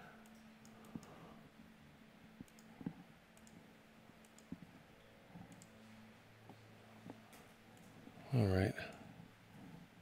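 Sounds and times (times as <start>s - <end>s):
faint steady hum: 0.0s - 10.0s
computer mouse clicks: 0.2s - 1.2s, 2.4s - 3.6s, 4.2s - 4.8s, 5.4s - 5.8s.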